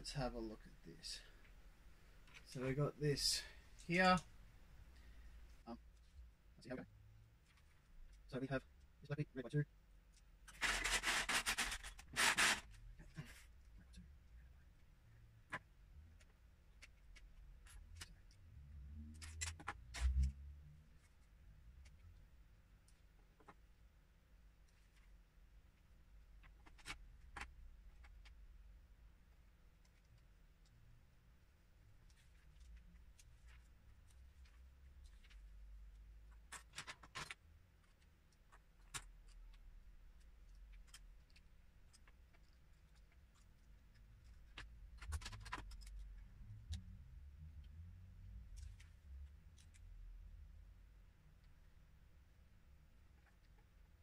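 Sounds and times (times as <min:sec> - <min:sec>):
low steady hum: 0:12.7 - 0:54.0.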